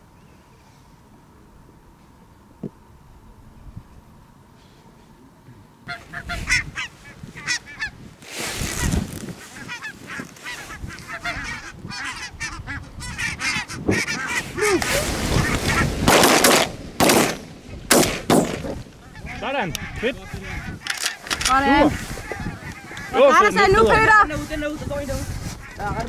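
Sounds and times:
geese yapping calls: 0:05.8 - 0:17.8, 0:18.6 - 0:24.5, 0:25.4 - 0:26.0
loud bangs: 0:14.7 - 0:18.9.

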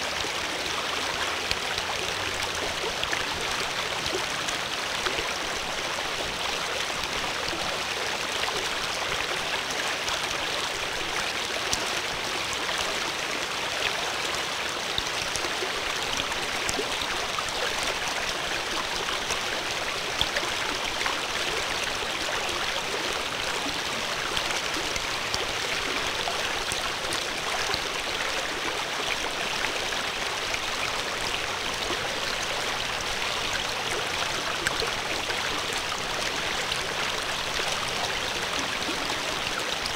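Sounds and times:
stream water babbling: 0:00.0 - 0:39.9.

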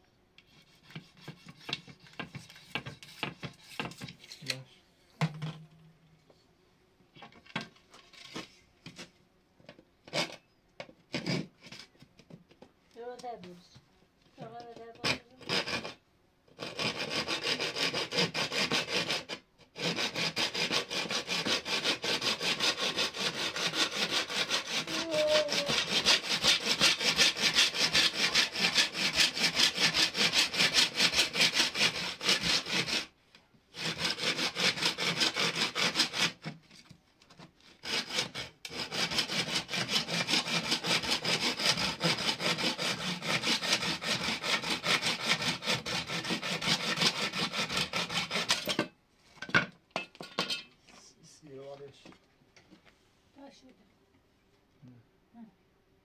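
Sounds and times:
hand saw cutting wood: 0:00.4 - 0:04.6, 0:07.6 - 0:09.1, 0:10.0 - 0:10.4, 0:11.1 - 0:12.4, 0:14.4 - 0:48.9.

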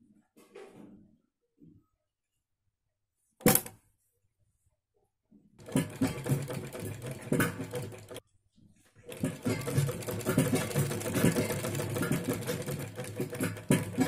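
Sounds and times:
sewing machine stitching: 0:05.6 - 0:08.2, 0:09.0 - 0:14.0.

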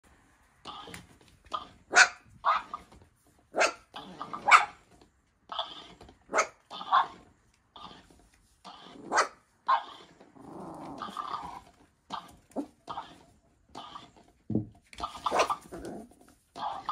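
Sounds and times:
puppies barking: 0:01.9 - 0:02.8, 0:03.6 - 0:04.8, 0:05.6 - 0:07.2, 0:08.8 - 0:10.1, 0:15.1 - 0:15.8
puppy growling: 0:03.6 - 0:04.7, 0:05.5 - 0:14.3, 0:15.0 - 0:16.9.

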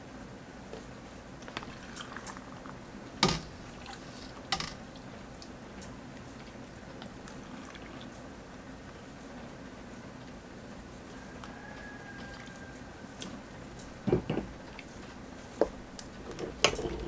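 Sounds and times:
liquid pouring: 0:01.4 - 0:04.2, 0:07.1 - 0:08.2
metal ladle knocking: 0:03.2 - 0:03.6.

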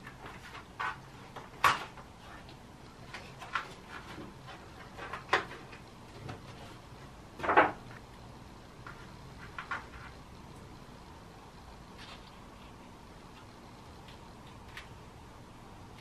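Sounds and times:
paper and tape crackling: 0:00.0 - 0:06.8.

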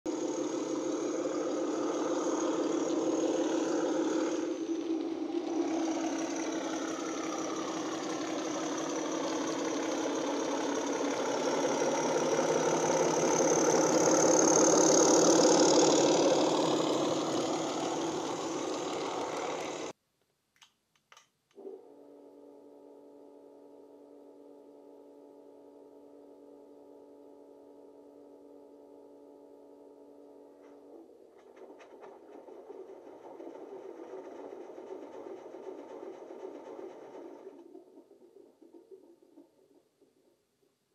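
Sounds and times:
diesel engine sound from speaker: 0:00.1 - 0:19.9, 0:27.6 - 0:39.8
faint steady hum: 0:00.1 - 0:40.9.

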